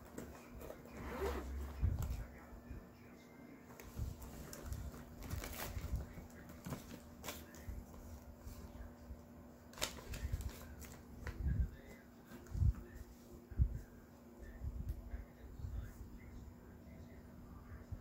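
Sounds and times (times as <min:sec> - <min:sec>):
paper and plastic bags rustling: 0:03.7 - 0:08.8, 0:09.7 - 0:13.0.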